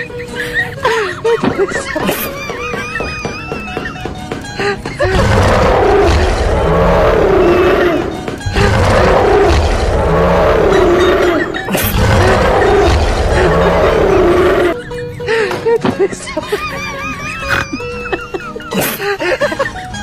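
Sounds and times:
big cat roaring: 5.0s - 14.8s.

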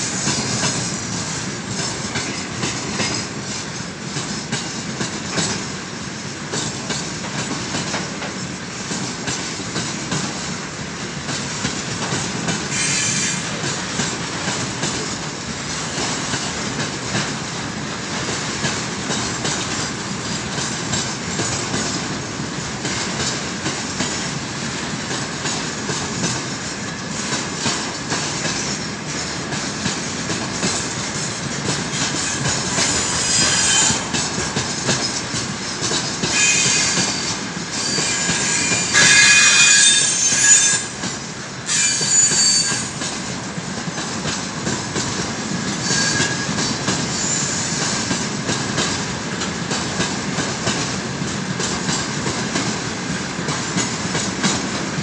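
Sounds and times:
train wheels rumbling and clattering: 0.0s - 55.0s
high squeal: 36.3s - 40.9s, 41.7s - 42.9s, 45.8s - 46.5s.

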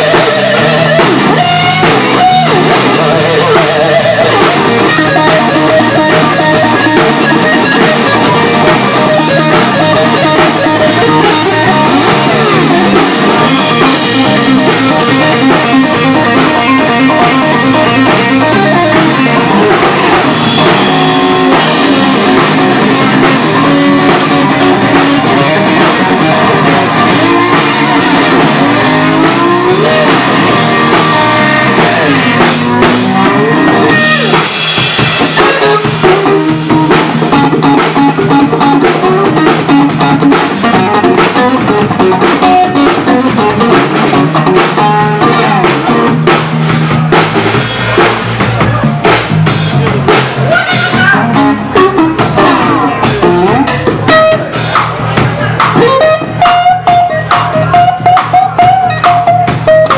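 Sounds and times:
resonator guitar bending notes: 0.0s - 47.2s, 50.4s - 55.1s
blues-rock band playing: 0.0s - 59.9s
drum kit: 0.0s - 59.9s.

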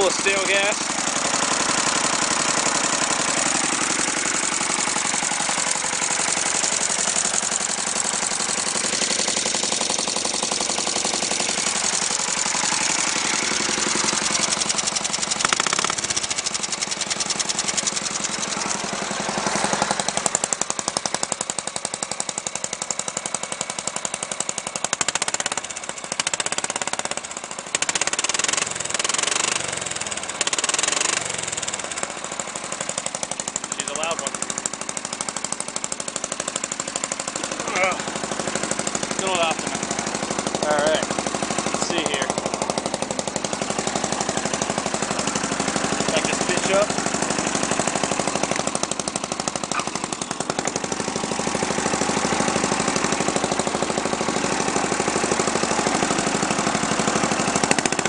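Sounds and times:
engine with choppy exhaust beat: 0.0s - 58.0s.

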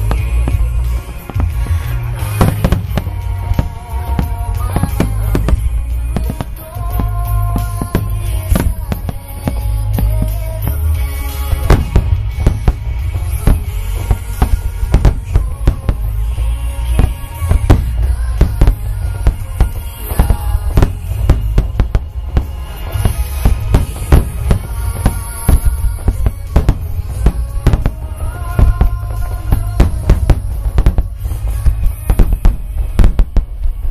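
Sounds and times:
firework shells bursting: 0.0s - 33.9s.

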